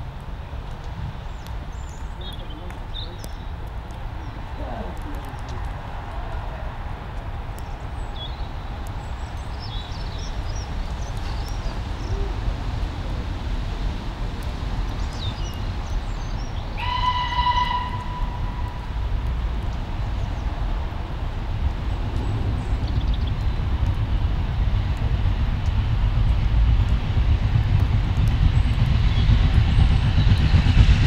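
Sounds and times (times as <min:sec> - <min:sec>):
birds chirping: 0:01.2 - 0:05.7, 0:07.5 - 0:13.4, 0:14.7 - 0:18.9
steam locomotive rumbling: 0:03.9 - 0:31.0
steam whistle blast: 0:16.8 - 0:18.7.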